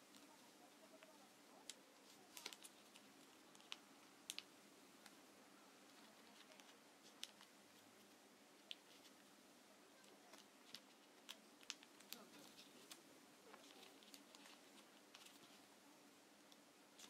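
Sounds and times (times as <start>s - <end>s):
paper crinkling: 0.0s - 5.2s, 5.8s - 9.3s, 9.9s - 15.8s.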